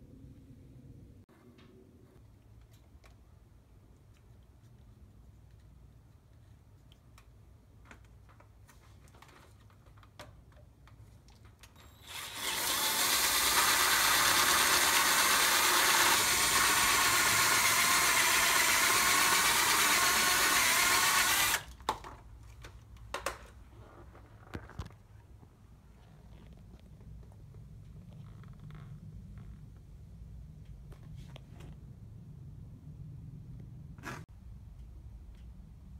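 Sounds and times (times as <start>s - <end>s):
cordless drill drilling metal: 11.8s - 21.7s.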